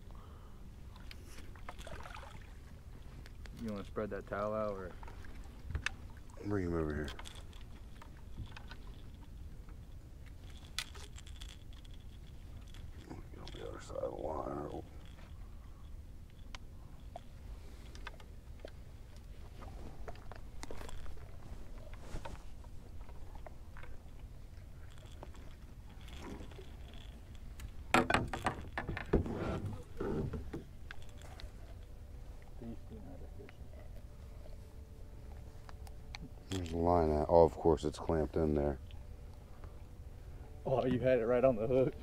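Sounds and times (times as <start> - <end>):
clattering and scraping on boat: 24.8 - 31.9.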